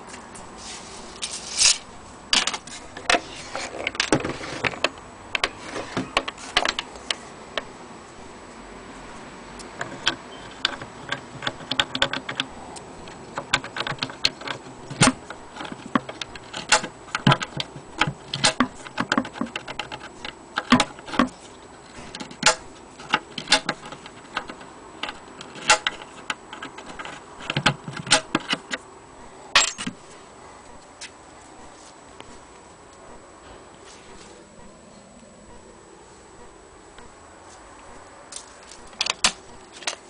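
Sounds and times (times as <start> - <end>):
metal latch clicks and clinks: 29.6 - 30.0.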